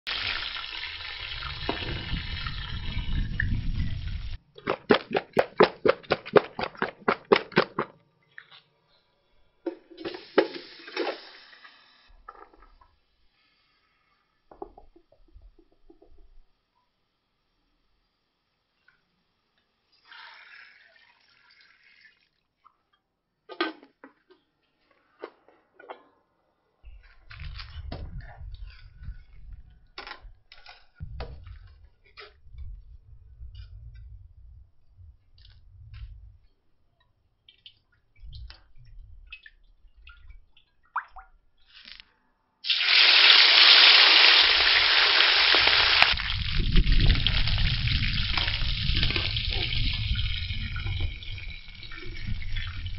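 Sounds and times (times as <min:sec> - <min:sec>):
chicken sizzling in hot oil: 0:00.1 - 0:04.4, 0:42.6 - 0:52.9
water pouring into a pot: 0:00.1 - 0:04.4, 0:19.8 - 0:22.5, 0:42.6 - 0:52.9
pot boiling and bubbling: 0:00.1 - 0:07.9, 0:42.6 - 0:52.9.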